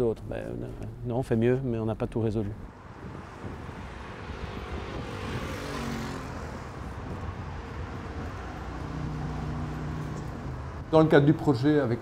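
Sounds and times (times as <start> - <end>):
road traffic rushing: 2.6 - 12.0
vehicle passing close: 2.7 - 11.0.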